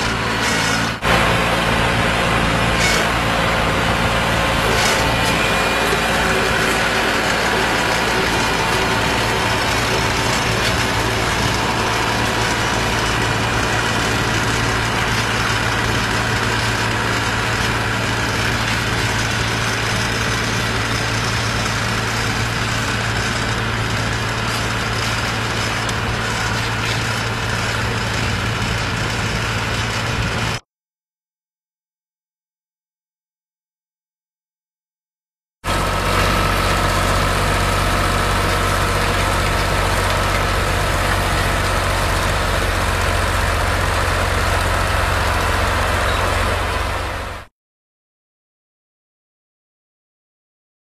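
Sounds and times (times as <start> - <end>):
tractor engine running: 0.0 - 30.6, 35.6 - 47.5.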